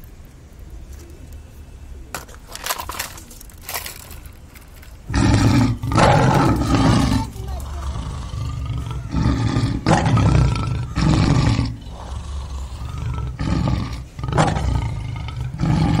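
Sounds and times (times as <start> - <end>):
big cat roars: 5.1 - 16.0
low growling: 5.1 - 16.0.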